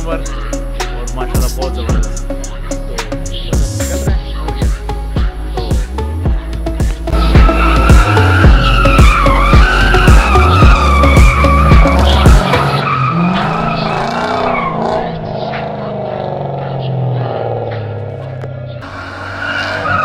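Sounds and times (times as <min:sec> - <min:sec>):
electronic music with heavy bass: 0:00.0 - 0:18.9
car engine revving: 0:06.8 - 0:20.0
tyres squealing: 0:07.1 - 0:20.0.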